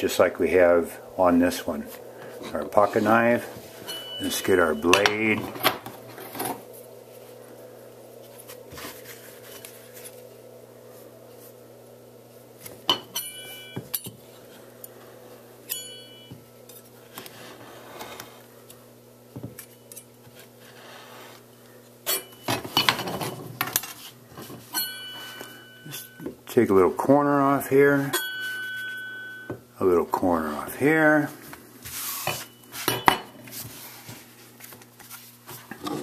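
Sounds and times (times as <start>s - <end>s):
metal tools clinking on table: 3.8s - 5.6s.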